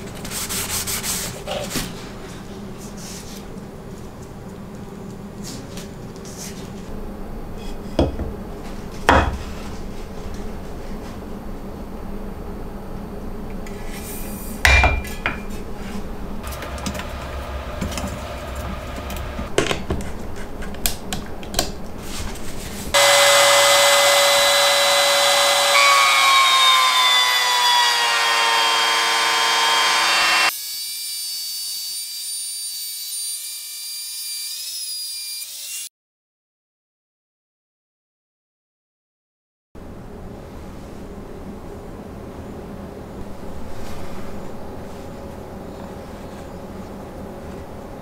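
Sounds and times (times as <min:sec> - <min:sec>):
trim router running: 0:16.4 - 0:19.5, 0:23.0 - 0:30.5.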